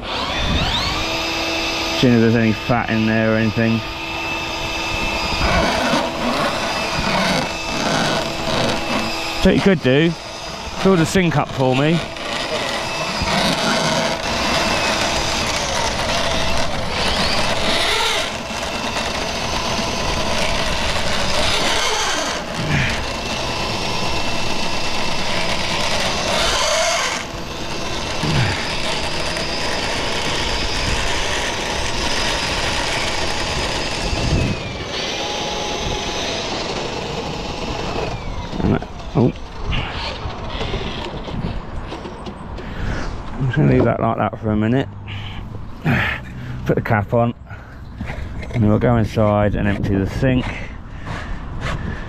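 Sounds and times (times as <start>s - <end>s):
drain snake motor running: 0.0s - 41.6s.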